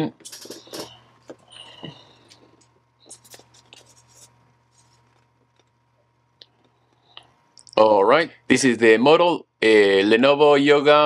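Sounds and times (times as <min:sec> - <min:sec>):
hands rubbing laptop: 0:03.1 - 0:05.4.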